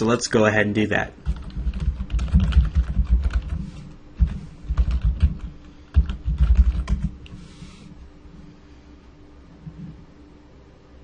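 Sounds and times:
typing on a computer keyboard: 0:01.2 - 0:07.2.

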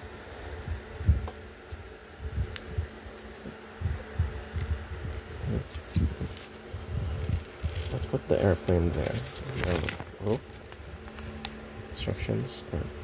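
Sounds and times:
steady low hum: 0:00.0 - 0:13.0
paper rustling: 0:05.9 - 0:11.4.

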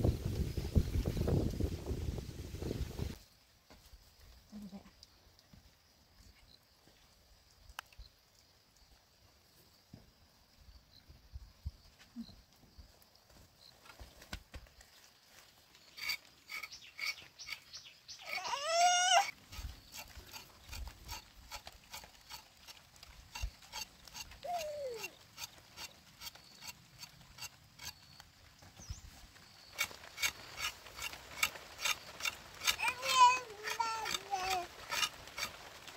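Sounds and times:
knife scraping roots: 0:15.8 - 0:28.2, 0:29.8 - 0:35.9.

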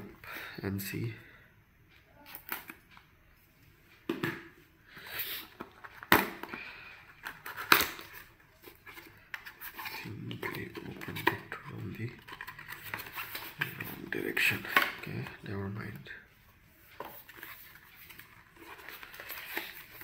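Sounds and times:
cardboard rustling: 0:07.2 - 0:15.4, 0:17.0 - 0:20.0
cardboard seal tearing: 0:07.4 - 0:08.2.

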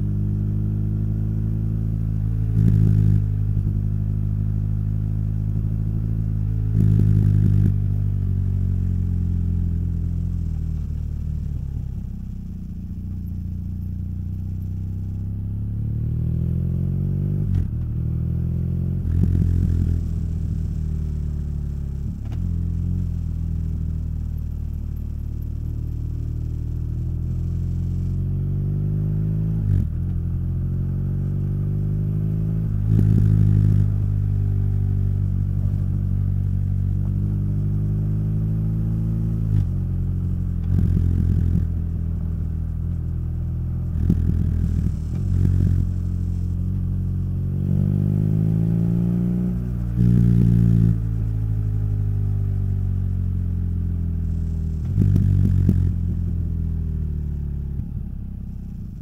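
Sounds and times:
motorcycle engine accelerating: 0:00.0 - 0:59.0
exhaust bursts on gear shifts: 0:32.4 - 0:37.4, 0:39.3 - 0:53.1, 0:53.9 - 0:59.0.

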